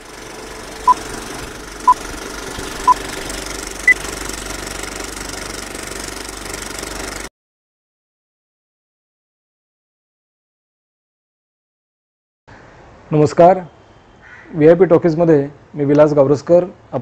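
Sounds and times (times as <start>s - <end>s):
film projector rattle: 0.0s - 7.3s.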